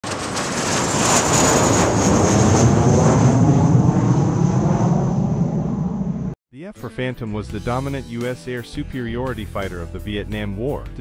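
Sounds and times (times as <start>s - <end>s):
deep rumble: 0.0s - 6.4s
jet engine rush and whine: 0.0s - 6.4s.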